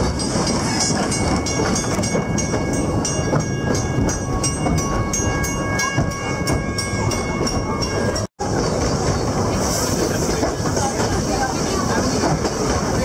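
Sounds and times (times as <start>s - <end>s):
level-crossing warning bell ringing: 0.0s - 8.4s
train wheels clattering on rails: 0.0s - 13.0s.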